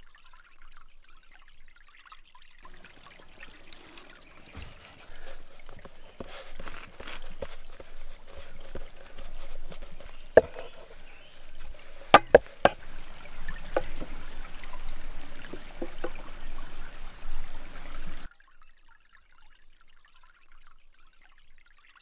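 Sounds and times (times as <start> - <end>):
stream water trickling: 0.0 - 22.0
sharp taps on a wooden board: 9.7 - 14.9, 15.5 - 16.3.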